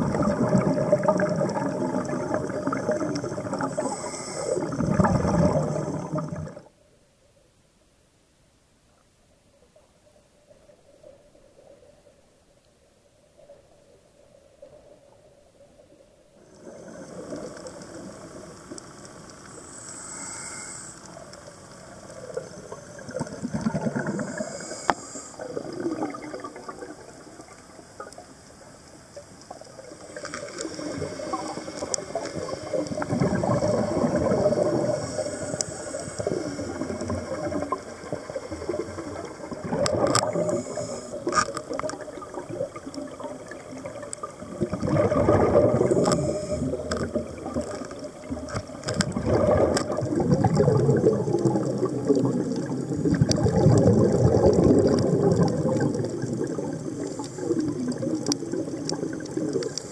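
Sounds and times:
underwater breathing bubbles: 0:00.0 - 0:06.7, 0:19.5 - 0:28.1, 0:29.7 - 0:59.9
faint hissing: 0:00.0 - 0:59.9.

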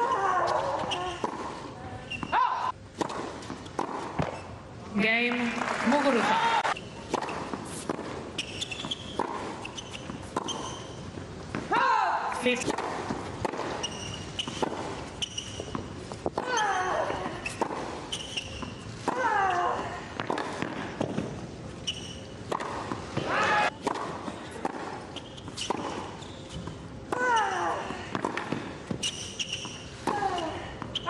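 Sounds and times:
shoes squeaking on court: 0:00.1 - 0:02.4, 0:03.0 - 0:04.6, 0:06.7 - 0:11.7, 0:12.5 - 0:19.6, 0:20.2 - 0:27.6, 0:28.2 - 0:31.0
racket striking tennis ball: 0:02.9 - 0:04.4, 0:06.7 - 0:19.3, 0:20.2 - 0:21.4, 0:22.4 - 0:27.4, 0:28.1 - 0:31.0.

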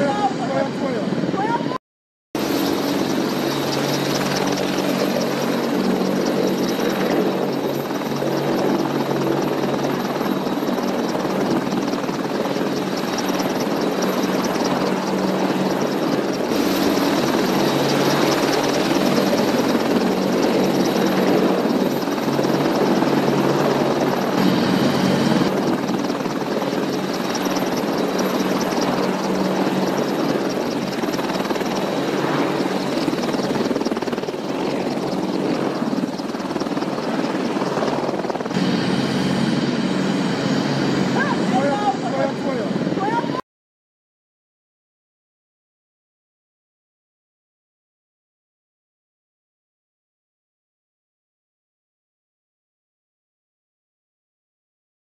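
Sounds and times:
helicopter turbine engine noise: 0:00.0 - 0:01.8, 0:02.4 - 0:43.4
helicopter rotor chop: 0:02.4 - 0:43.4.

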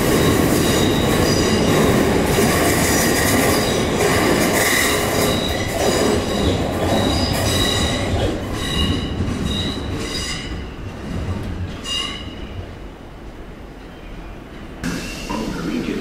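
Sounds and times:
train rumble: 0:00.0 - 0:16.0
train wheels squealing: 0:00.1 - 0:01.9, 0:04.6 - 0:10.6, 0:11.8 - 0:12.6.

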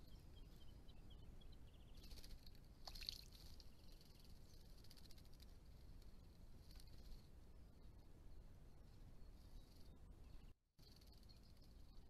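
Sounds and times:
small birds chirping: 0:00.0 - 0:12.0
buzzy bird trill: 0:09.2 - 0:12.0.

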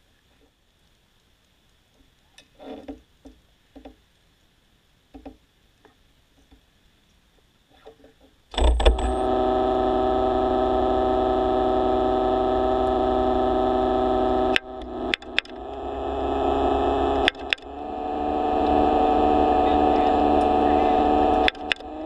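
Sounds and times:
motor humming underwater: 0:08.6 - 0:22.0.

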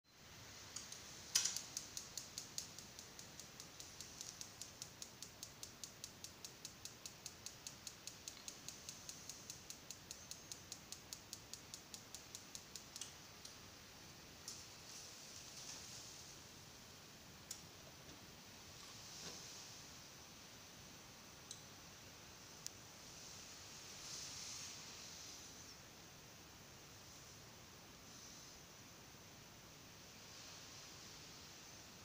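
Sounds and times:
spark igniter clicking rapidly: 0:00.7 - 0:13.6.

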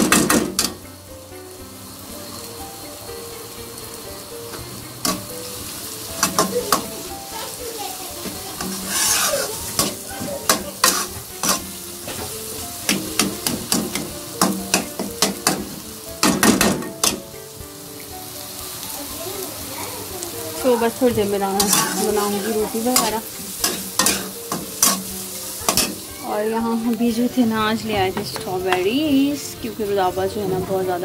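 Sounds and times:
light sizzle: 0:00.0 - 0:31.0
fork scraping metal pan: 0:08.6 - 0:12.3, 0:21.6 - 0:26.1.

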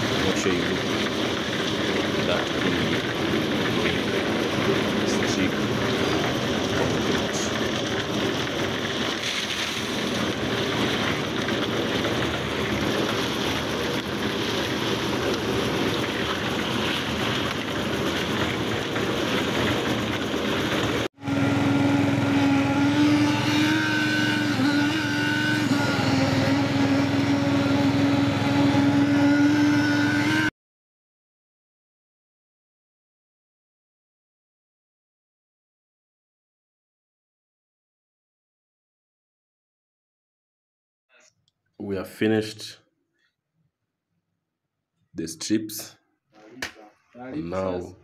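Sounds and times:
concrete mixer churning: 0:00.0 - 0:30.5
engine hum with wavering pitch: 0:00.0 - 0:30.5.

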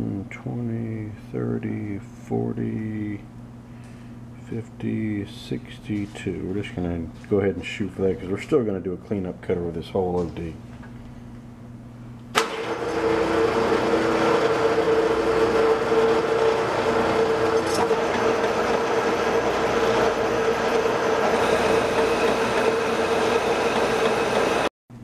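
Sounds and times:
metal lathe whining: 0:12.4 - 0:24.7
cutting tool turning steel: 0:13.6 - 0:24.7.

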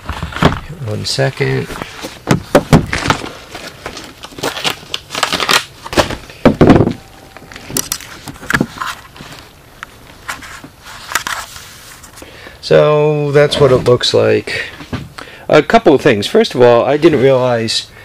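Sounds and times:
rustling and crinkling: 0:00.0 - 0:12.2.

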